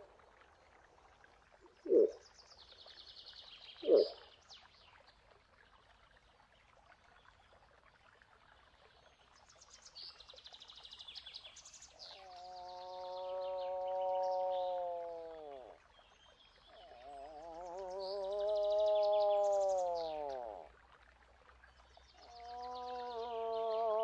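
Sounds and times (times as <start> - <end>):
songbirds trilling: 3.8 - 4.2.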